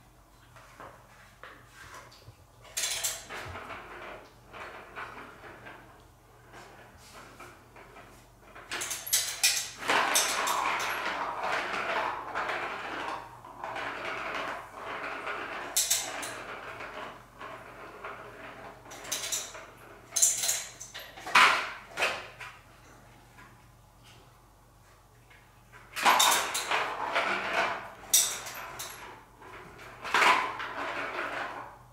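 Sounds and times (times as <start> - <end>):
plastic ball rolling on track: 9.7 - 20.2, 29.4 - 31.8.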